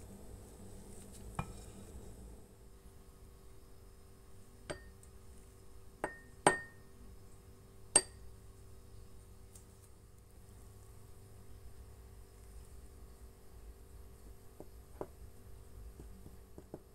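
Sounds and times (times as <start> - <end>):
spoon clinking against glass bowl: 4.7 - 5.0, 8.0 - 8.2.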